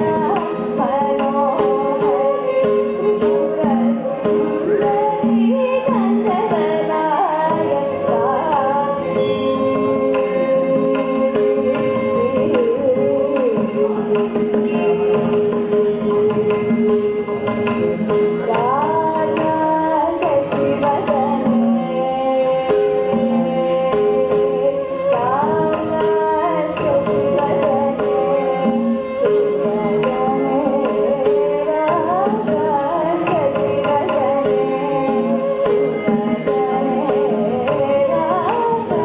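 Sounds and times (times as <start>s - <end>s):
violin: 0.0s - 39.0s
woman singing: 0.0s - 39.0s
drum strokes: 8.6s - 21.6s.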